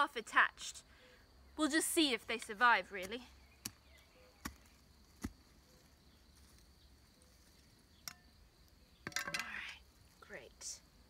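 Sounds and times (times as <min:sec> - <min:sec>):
mattock striking soil: 0:02.4 - 0:06.7.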